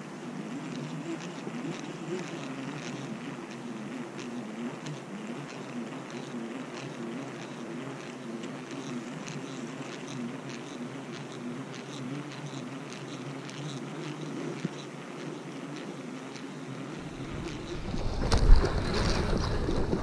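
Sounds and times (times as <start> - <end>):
faint reel ticking: 0.3 - 17.8
fishing reel whirring: 16.1 - 20.0
wind buffeting microphone: 17.0 - 20.0.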